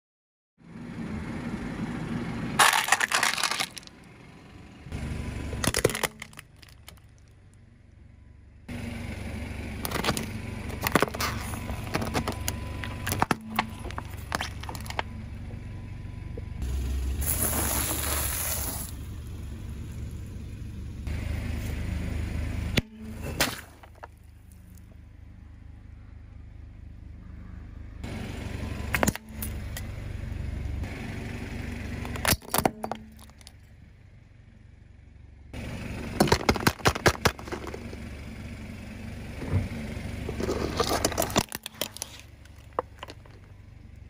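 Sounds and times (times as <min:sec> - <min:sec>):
car engine running low: 0:00.6 - 0:44.0
plastic cracking under tyre: 0:02.6 - 0:04.0, 0:05.6 - 0:07.3, 0:09.8 - 0:15.1, 0:36.2 - 0:38.0, 0:40.4 - 0:43.5
liquid spraying from burst bag: 0:17.2 - 0:18.9.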